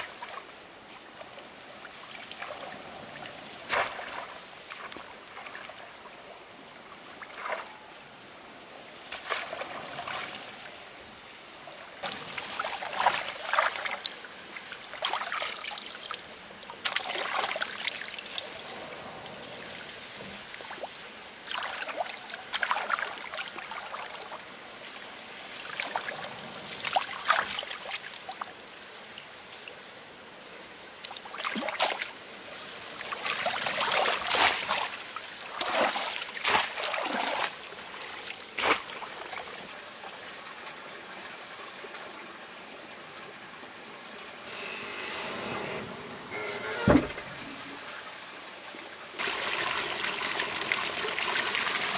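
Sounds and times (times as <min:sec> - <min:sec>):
muddy water splashing: 0:02.2 - 0:05.9, 0:09.0 - 0:10.8, 0:12.0 - 0:16.2, 0:20.4 - 0:24.4, 0:32.8 - 0:39.7
water trickling: 0:45.2 - 0:51.9.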